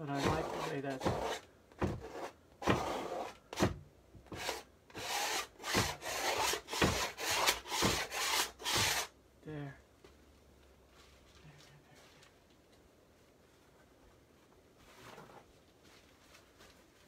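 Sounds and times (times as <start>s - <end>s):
blade scraping dry paint: 0.1s - 1.4s.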